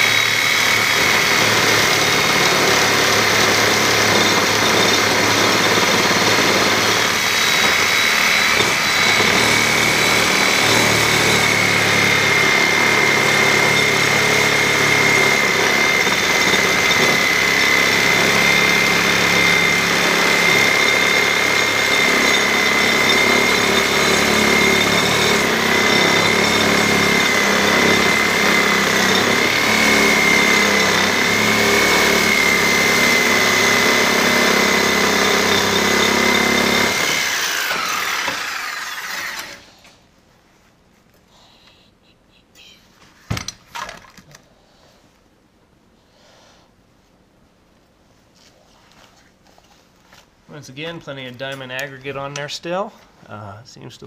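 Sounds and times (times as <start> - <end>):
reciprocating saw cutting concrete: 0.0 - 39.7.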